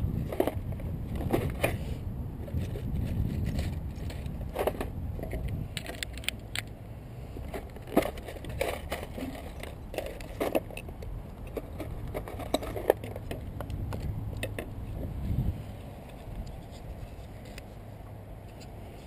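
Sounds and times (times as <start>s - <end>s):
screws rattling in plastic case: 2.5s - 6.6s, 7.4s - 13.6s.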